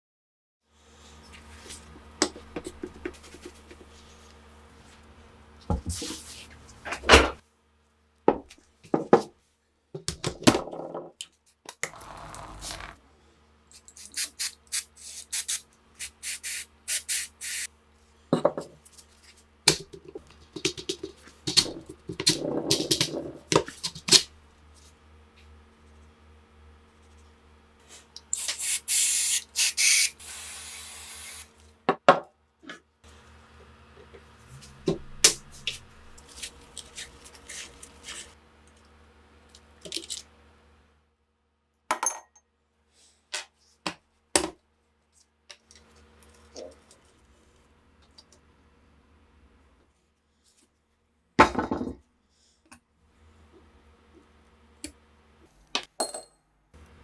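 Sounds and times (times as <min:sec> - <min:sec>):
aerosol can spraying: 0:14.0 - 0:17.7, 0:28.3 - 0:31.5
faint low hum: 0:33.1 - 0:37.9.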